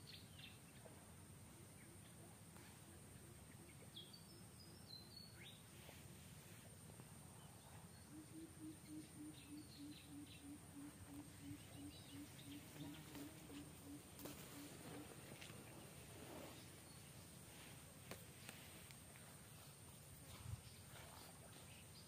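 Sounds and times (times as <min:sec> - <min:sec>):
bird chirps: 0:07.4 - 0:15.1.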